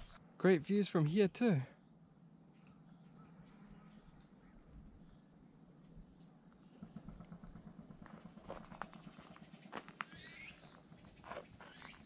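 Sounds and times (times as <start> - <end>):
cricket high-pitched note: 8.5 - 10.8.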